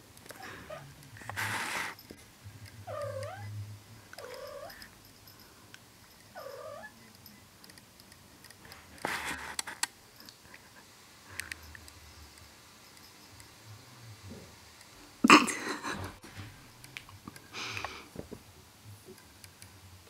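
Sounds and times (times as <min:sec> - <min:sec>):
rustling: 0:00.2 - 0:03.2
cat meowing: 0:02.8 - 0:03.6, 0:04.2 - 0:04.8, 0:06.4 - 0:07.0.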